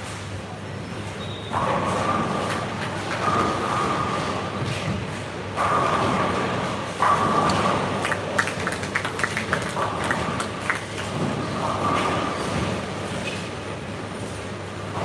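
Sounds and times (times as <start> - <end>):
bowling balls rolling: 1.5 - 13.1.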